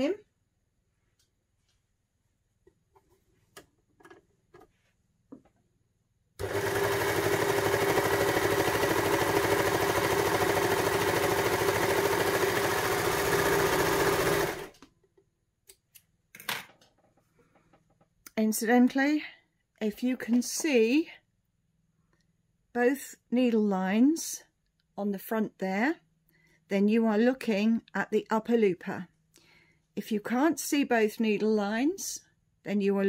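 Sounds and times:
overlocker stitching: 6.4s - 14.8s.

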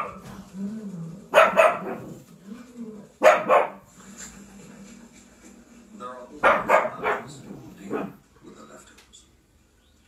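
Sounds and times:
puppy barking: 0.0s - 0.2s, 1.3s - 2.2s, 3.2s - 3.9s, 6.4s - 8.2s.

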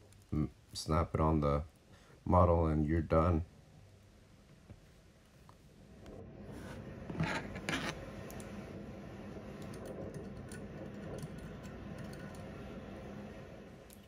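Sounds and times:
tool rubbing model fan: 6.6s - 8.1s
scratching and scraping plastic model: 7.1s - 8.0s.

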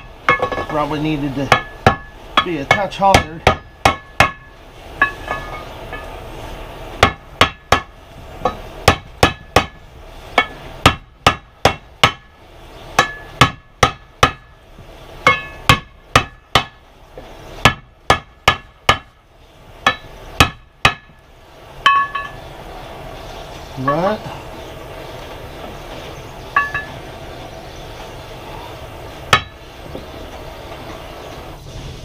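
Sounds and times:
hammer striking metal: 0.0s - 0.8s, 1.5s - 6.1s, 10.4s - 12.3s, 13.0s - 14.5s, 15.2s - 16.8s, 19.8s - 21.1s, 21.8s - 22.4s, 26.6s - 27.0s, 29.3s - 29.6s
metal ringing: 0.0s - 6.2s, 15.2s - 16.7s, 21.8s - 22.5s, 26.5s - 27.2s.

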